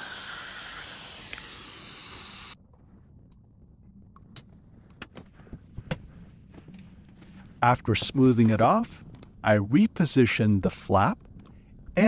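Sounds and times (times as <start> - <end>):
dental suction hiss: 0.0 - 2.6.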